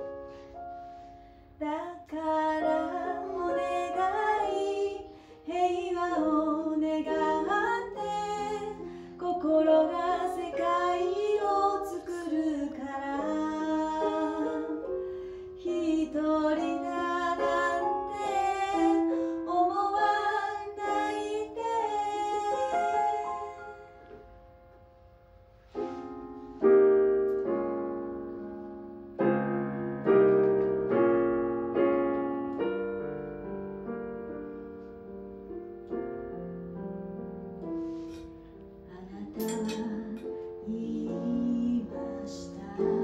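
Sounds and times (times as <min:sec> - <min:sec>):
woman singing: 0:01.6 - 0:15.0, 0:15.6 - 0:24.0, 0:38.9 - 0:43.0
electronic keyboard: 0:09.8 - 0:43.0.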